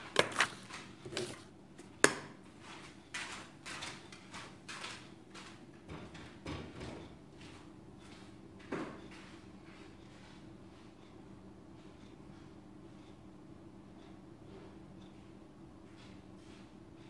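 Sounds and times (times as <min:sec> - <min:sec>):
faint knocks and rustles: 0:00.1 - 0:11.2, 0:14.4 - 0:16.8.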